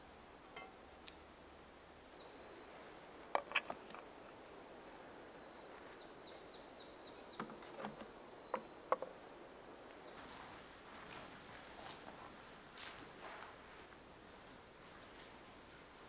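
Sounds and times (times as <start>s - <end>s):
bird chirping: 2.1s - 10.4s
wooden cups clacking on wood: 3.4s - 4.0s.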